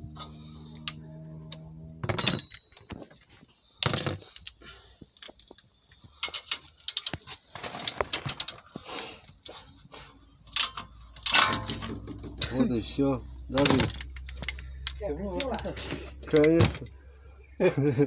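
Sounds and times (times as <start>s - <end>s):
steel tools clinking: 0.2s - 3.2s, 10.5s - 16.8s.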